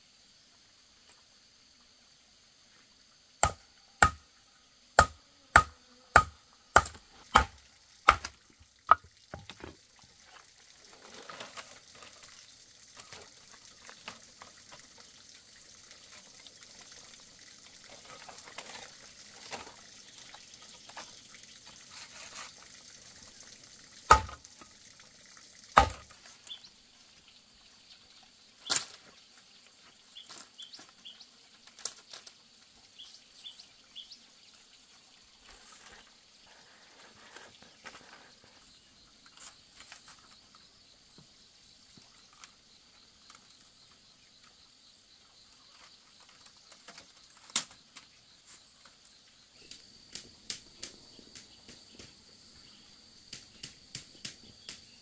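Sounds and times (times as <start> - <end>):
machete chopping bamboo: 3.4 - 4.2, 5.0 - 9.5, 24.1 - 24.4, 25.8 - 26.2
bamboo rustling and scraping: 7.0 - 15.0, 17.8 - 22.8, 28.6 - 32.4, 35.4 - 40.7, 45.6 - 51.1.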